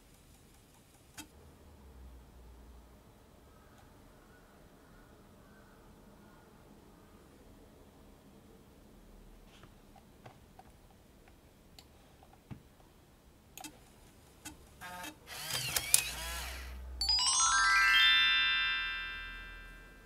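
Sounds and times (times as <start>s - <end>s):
eject motor whirring: 14.8s - 16.8s
rising chime-like notes: 17.0s - 20.0s.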